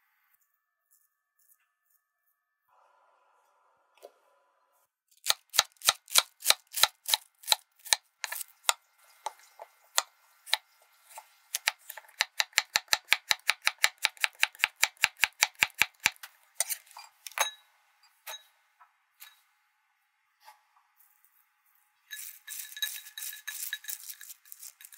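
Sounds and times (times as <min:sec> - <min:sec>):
knife chopping on wooden board: 0:05.2 - 0:10.6, 0:11.2 - 0:16.8.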